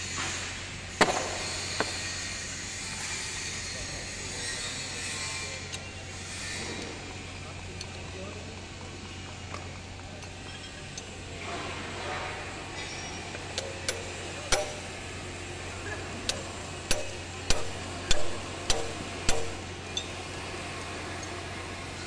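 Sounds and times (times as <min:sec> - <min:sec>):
wrench clicking on bolt: 0:13.6 - 0:14.9, 0:16.3 - 0:20.1.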